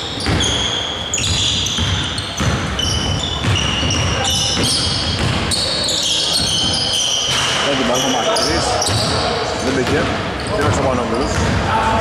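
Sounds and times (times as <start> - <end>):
sneakers squeaking on floor: 0.0 - 11.7
basketball dribbling thuds: 0.2 - 5.6, 8.8 - 11.7.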